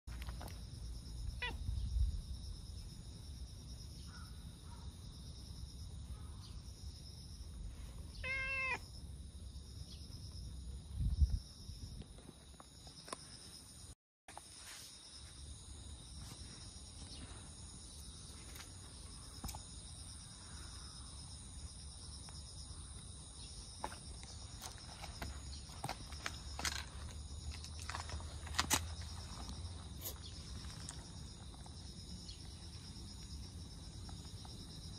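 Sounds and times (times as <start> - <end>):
cat meowing: 8.2 - 8.8.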